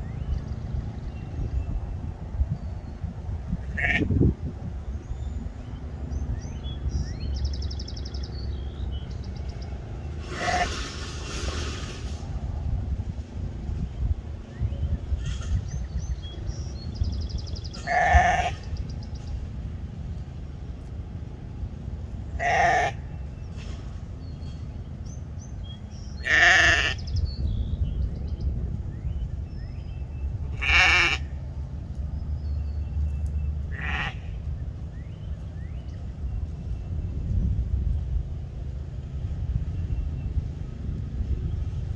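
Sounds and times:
steady low rumble: 0.0 - 41.9
sheep bleating: 3.7 - 4.1, 17.8 - 18.7, 22.4 - 23.0, 26.2 - 27.0, 30.6 - 31.3, 33.7 - 34.2.

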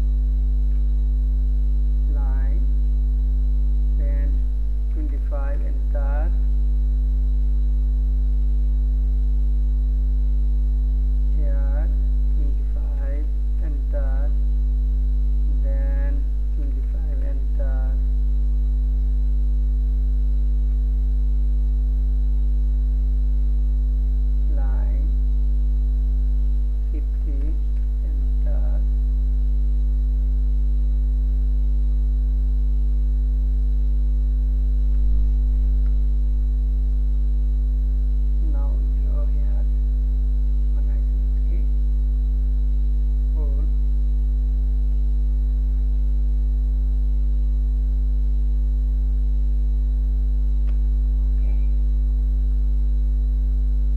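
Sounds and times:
electrical mains hum: 0.0 - 53.9
faint voice: 51.4 - 51.8.

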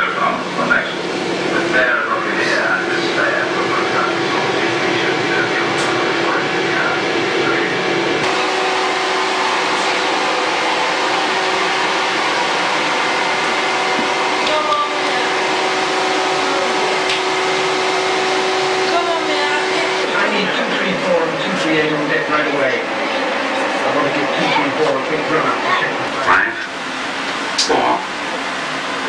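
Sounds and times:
faint voices: 0.0 - 26.8
loud mechanical hum: 0.0 - 29.0.

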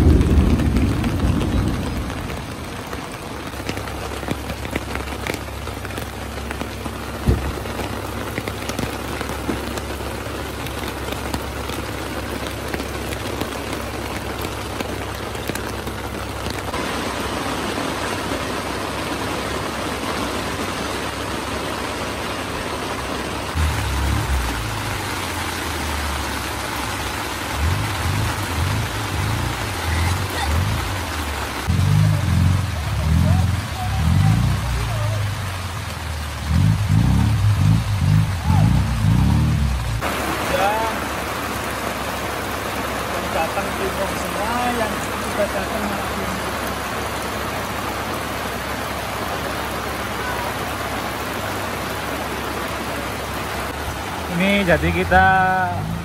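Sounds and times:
low rumble: 0.0 - 8.1
heavy rain pattering: 0.0 - 56.0
loud thump: 7.2 - 7.7.

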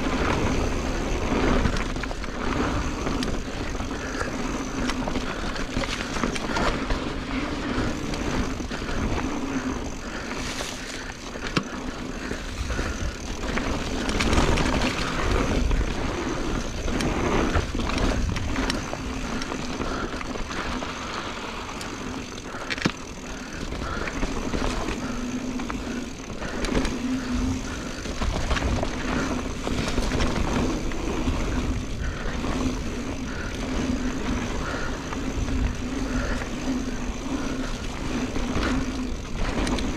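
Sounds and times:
wind rumbling on microphone: 0.0 - 21.2
bike rattling and knocking: 0.0 - 39.9
tyres on dirt: 0.0 - 39.9.

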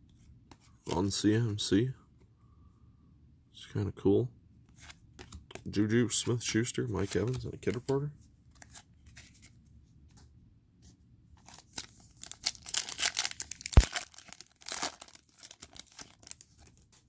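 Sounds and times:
cards being handled: 4.7 - 10.2, 11.4 - 17.0
foil wrapper tearing: 11.5 - 16.8.

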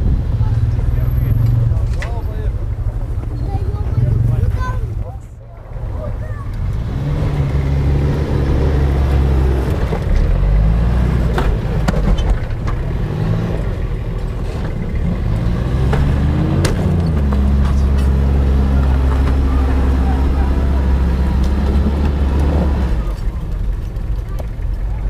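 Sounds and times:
car engine revving under load: 5.7 - 25.0.

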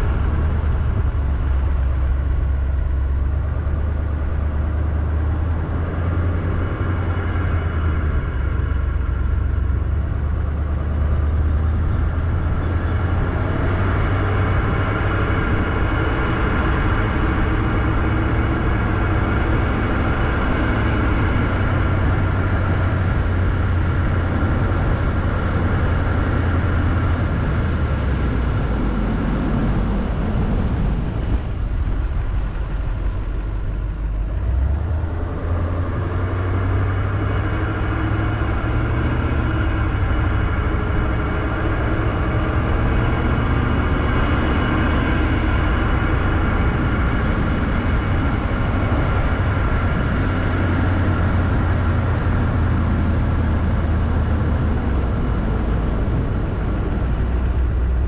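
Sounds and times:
vehicle engine and tyre drone: 0.0 - 58.0.

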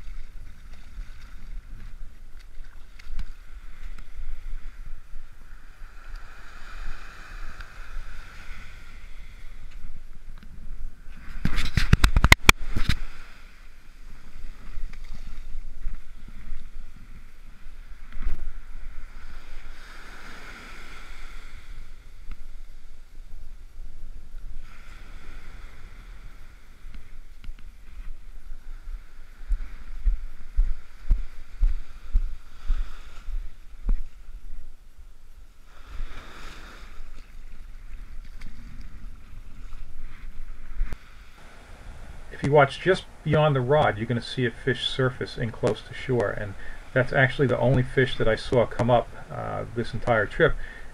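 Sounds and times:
surf waves washing on beach: 0.0 - 50.9
sharp knocks and rustles: 11.2 - 13.0
wind buffeting microphone: 14.2 - 34.8.

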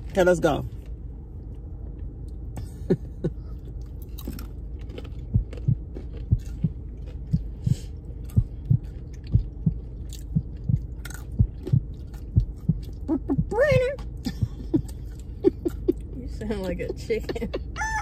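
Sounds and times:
people chewing crunchy nuts: 3.3 - 13.1.

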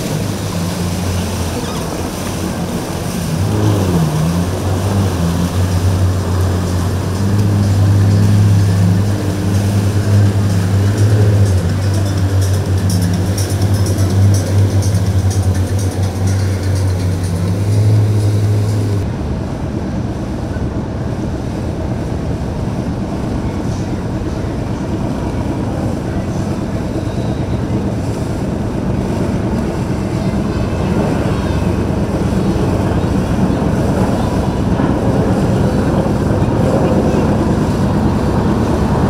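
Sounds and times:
boat wake churning: 0.0 - 39.0
motorboat engine rumble: 0.0 - 39.0
music with heavy bass: 5.7 - 19.0.

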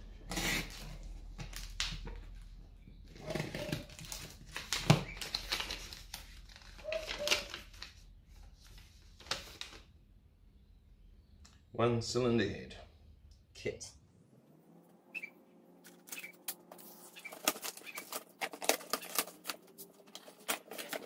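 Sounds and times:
plastic crinkling and rustling: 3.1 - 9.9, 15.9 - 21.0
packing tape tearing: 15.8 - 21.0.

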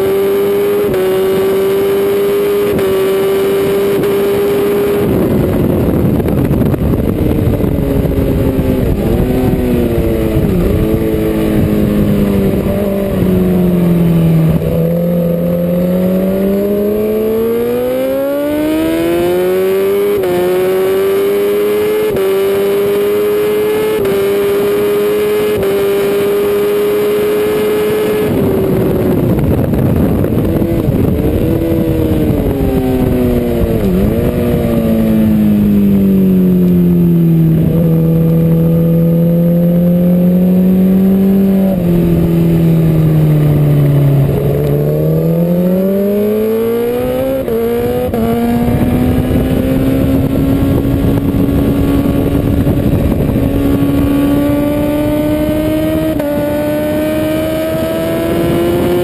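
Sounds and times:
motorcycle engine revving: 0.0 - 59.0
wind rushing over microphone: 0.0 - 59.0.

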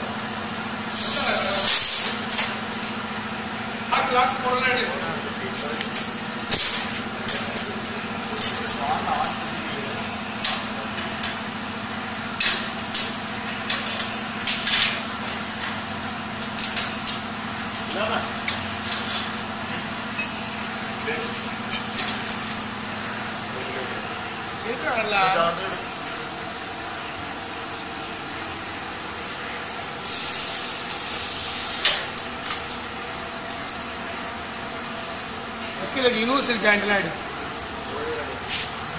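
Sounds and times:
compressed air hissing bursts: 0.9 - 2.2, 30.0 - 32.2.

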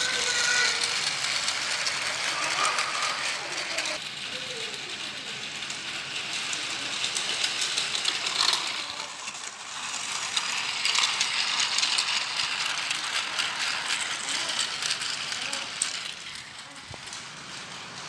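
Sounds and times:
toy train motor whirring: 0.0 - 18.0.

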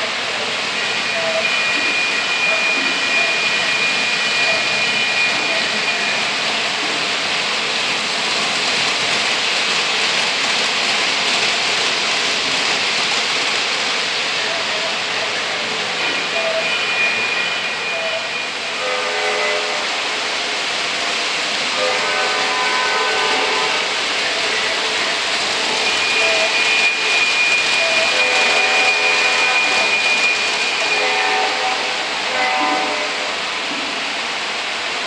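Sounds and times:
model train wheels on rails: 0.0 - 35.0.

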